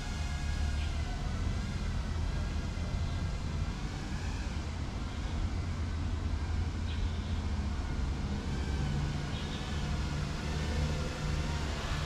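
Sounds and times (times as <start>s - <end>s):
quadcopter motors whining: 2.2s - 12.0s.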